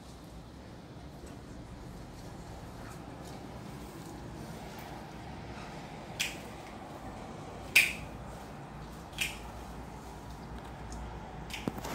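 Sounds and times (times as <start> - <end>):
plant stems being snipped: 6.2 - 6.8, 7.7 - 8.1, 9.1 - 9.6, 10.3 - 11.9.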